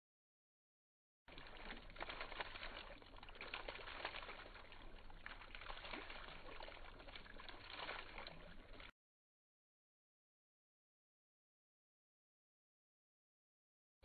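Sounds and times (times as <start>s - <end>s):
fountain water bubbling: 1.3s - 8.9s
water trickling and splashing: 1.3s - 8.9s.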